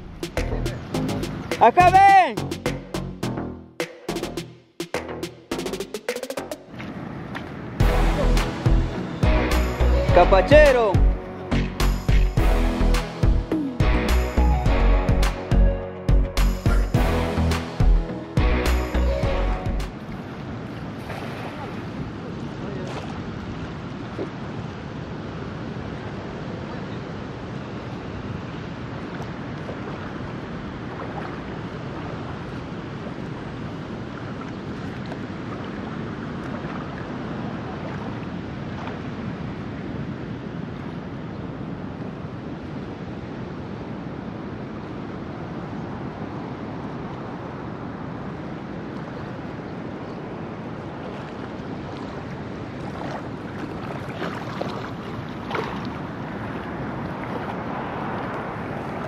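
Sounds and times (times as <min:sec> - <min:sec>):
water lapping and sloshing: 0:06.4 - 0:09.7, 0:11.0 - 0:13.3, 0:19.8 - 0:42.8, 0:46.9 - 0:59.0.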